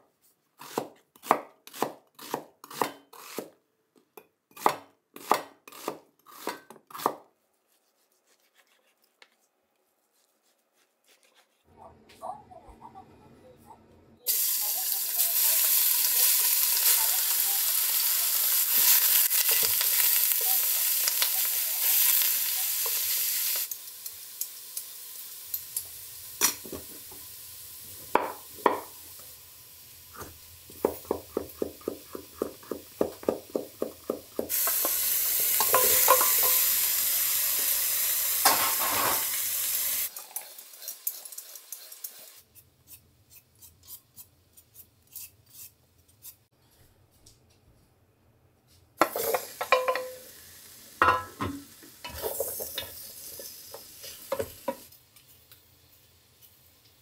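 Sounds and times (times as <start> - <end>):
knife chopping carrots on board: 0.6 - 3.6, 4.5 - 7.3, 30.7 - 34.5
pork sizzling in oil: 14.3 - 42.6, 49.0 - 57.0.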